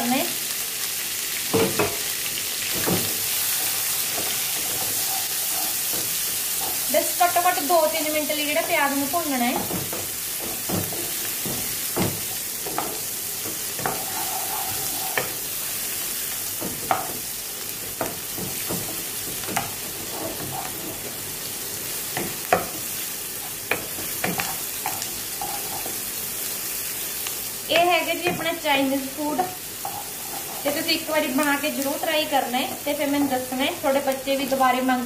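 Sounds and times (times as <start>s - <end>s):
onions sizzling in oil: 0.0s - 35.0s
spatula scraping pan: 2.7s - 7.8s, 8.9s - 17.2s, 18.1s - 21.2s, 22.1s - 26.1s, 28.2s - 31.6s.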